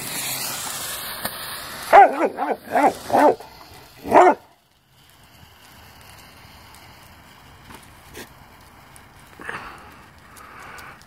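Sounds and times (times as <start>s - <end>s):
smoke ball hissing and sparking: 0.0s - 11.0s
dog barking: 1.9s - 4.5s.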